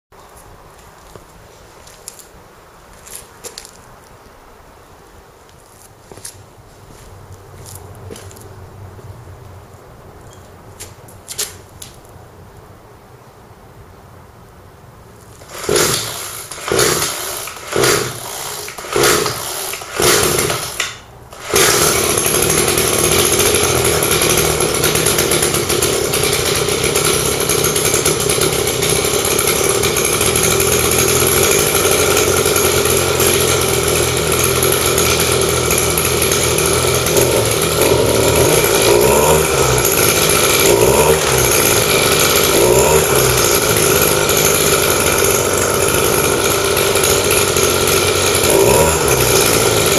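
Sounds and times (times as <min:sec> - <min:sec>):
recoil starter tugs: 0:15.3 - 0:49.9
brush cutter engine running: 0:15.4 - 0:49.9.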